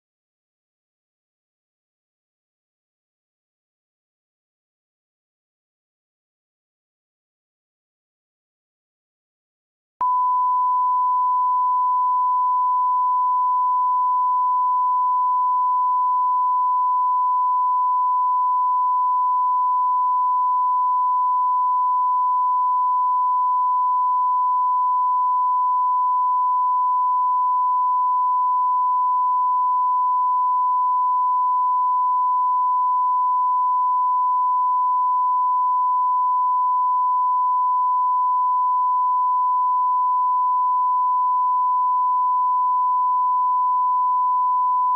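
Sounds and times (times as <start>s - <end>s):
steady sine test tone: 10.0s - 44.9s.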